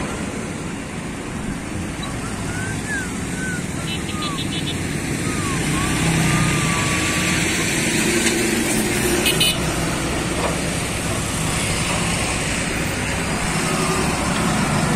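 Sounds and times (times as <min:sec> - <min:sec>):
heavy truck engine running: 0:00.0 - 0:14.9
motorcycle engines: 0:00.0 - 0:14.9
horn toot: 0:09.0 - 0:09.6.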